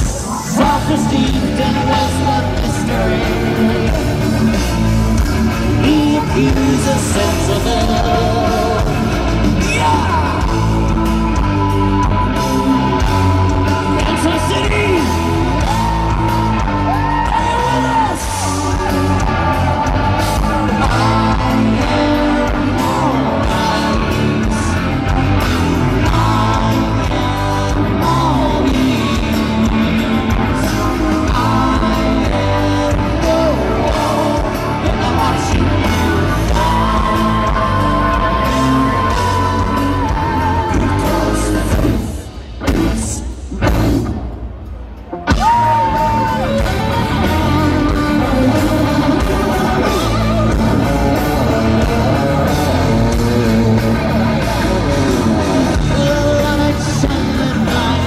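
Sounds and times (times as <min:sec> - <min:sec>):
heavy metal band playing live: 0:00.0 - 0:58.0.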